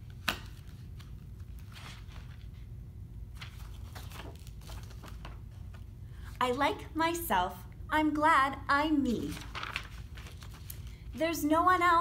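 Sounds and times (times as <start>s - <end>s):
book pages rustling: 0.0s - 2.7s, 3.3s - 5.9s, 9.2s - 11.1s
low room hum: 0.0s - 12.0s.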